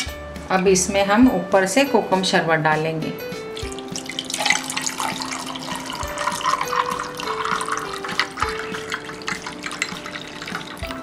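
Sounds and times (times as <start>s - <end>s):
soft background music: 0.0s - 11.0s
drink pouring over ice: 3.6s - 11.0s.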